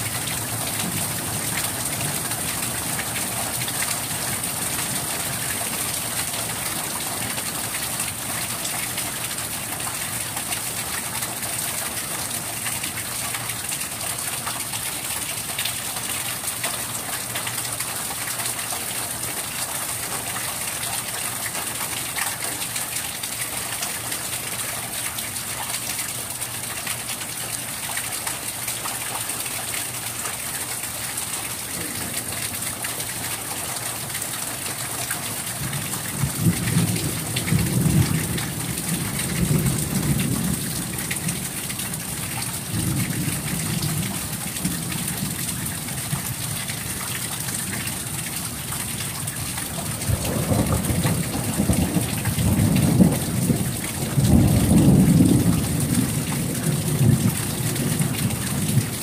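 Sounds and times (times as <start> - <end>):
steady rain falling: 0.0 - 59.0
thunder rumbling: 49.7 - 59.0.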